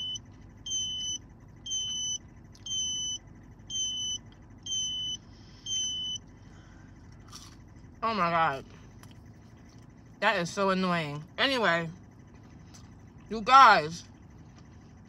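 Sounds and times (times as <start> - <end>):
car warning chime beeps: 0.0 - 6.3.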